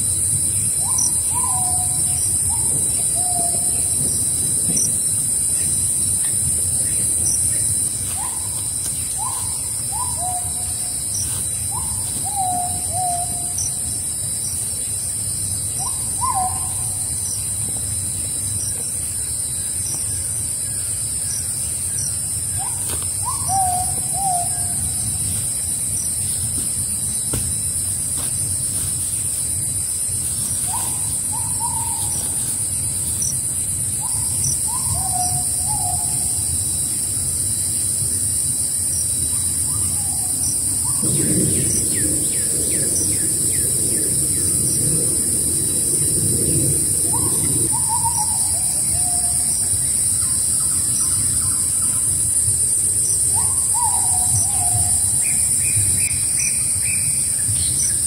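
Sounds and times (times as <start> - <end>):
steady high-pitched hiss: 0.0 - 58.0
bird hooting calls: 0.8 - 4.1, 8.1 - 13.9, 15.8 - 17.4, 22.5 - 27.6, 30.2 - 33.3, 47.0 - 49.4.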